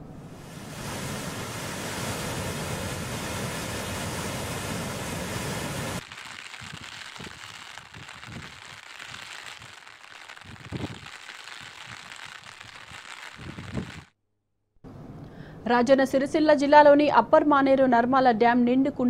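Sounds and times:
floodwater rushing: 0:00.4 - 0:14.1.

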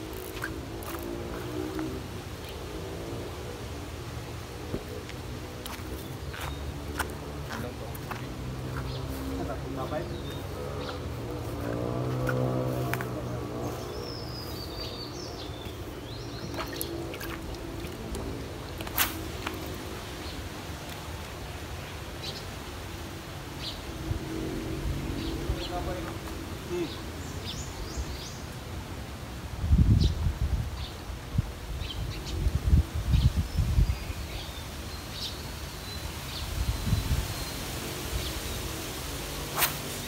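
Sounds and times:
wind buffeting microphone: 0:29.5 - 0:34.6, 0:36.3 - 0:38.4.

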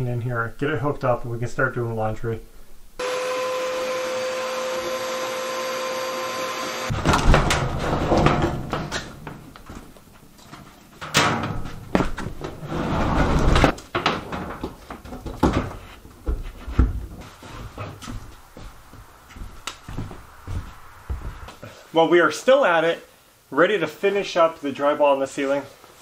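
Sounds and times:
machine hum with whine: 0:03.0 - 0:06.9
knocks and rattling of handling: 0:06.9 - 0:19.5.

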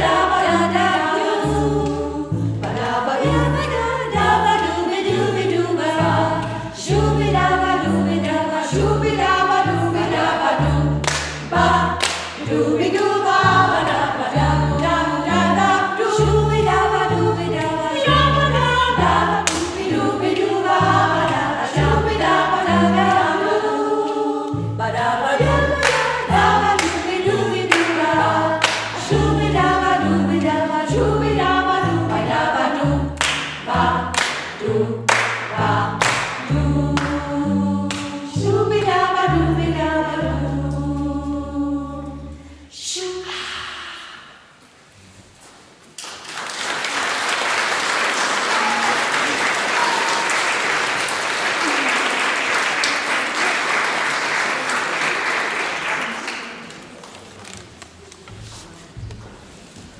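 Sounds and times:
double bass low notes: 0:00.0 - 0:23.7, 0:24.5 - 0:42.6
women's choir singing: 0:00.0 - 0:44.4, 0:47.3 - 0:56.7.

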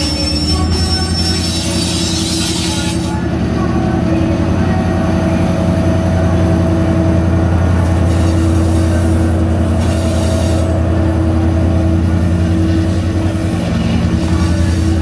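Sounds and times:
diesel engine drone: 0:00.0 - 0:15.0.

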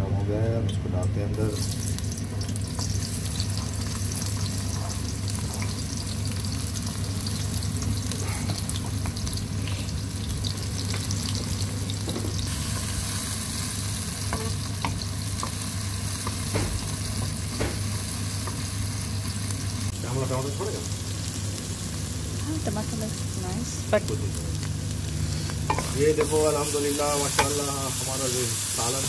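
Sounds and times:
onions sizzling in hot oil: 0:01.4 - 0:29.0
spoon stirring in oil: 0:25.6 - 0:26.4.

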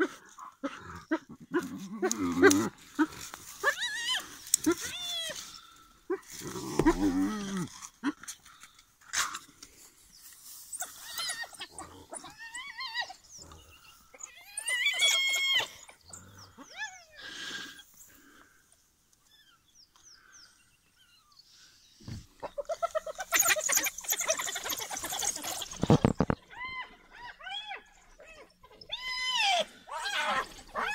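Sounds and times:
animals squealing and whining: 0:00.7 - 0:05.6, 0:06.4 - 0:07.9, 0:10.6 - 0:18.0, 0:22.2 - 0:30.9.

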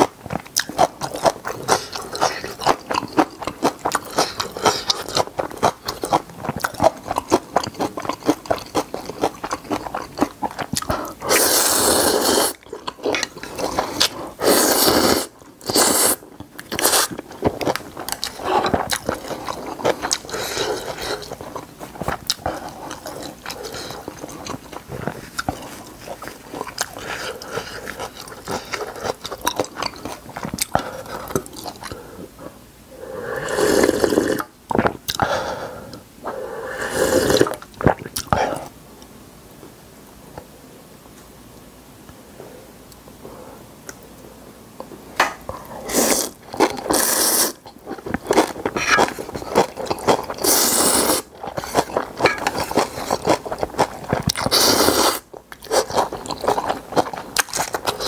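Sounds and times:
loud noodle slurps: 0:11.3 - 0:12.6, 0:13.8 - 0:16.2, 0:33.3 - 0:34.5, 0:36.6 - 0:37.6, 0:45.9 - 0:47.6, 0:48.7 - 0:51.3, 0:54.4 - 0:55.9
wet chewing with smacking: 0:15.6 - 0:32.0.

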